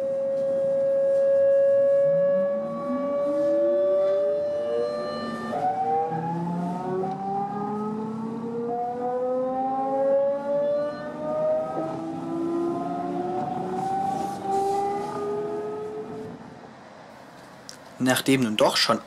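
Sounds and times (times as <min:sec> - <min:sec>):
electric train motors whining: 0:01.9 - 0:15.3.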